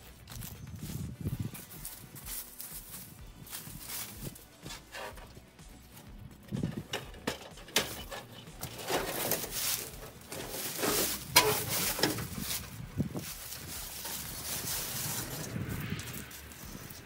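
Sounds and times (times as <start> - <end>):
boots shuffling in dry leaves: 0.0 - 6.0, 7.8 - 17.0
tin sheet scraping and knocking: 6.5 - 15.5.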